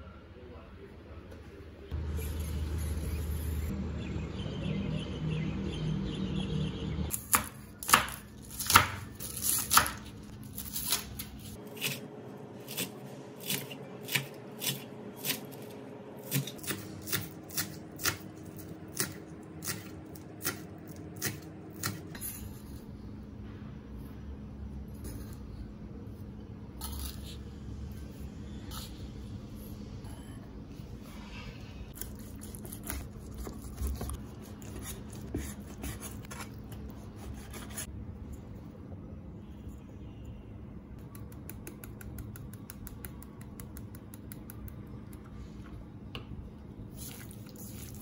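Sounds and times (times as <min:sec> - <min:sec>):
knife chopping on cutting board: 0:19.0 - 0:22.1.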